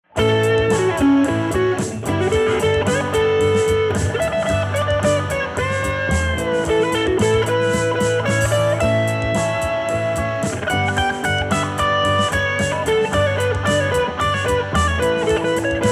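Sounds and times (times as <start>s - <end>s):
bass guitar: 0.0s - 15.9s
electric guitar lead: 0.0s - 15.9s
drums: 0.1s - 15.9s.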